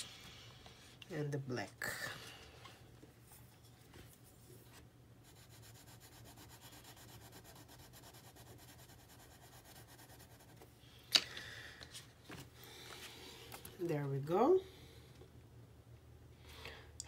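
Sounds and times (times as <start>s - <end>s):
pencil scribbling on paper: 5.2s - 10.6s.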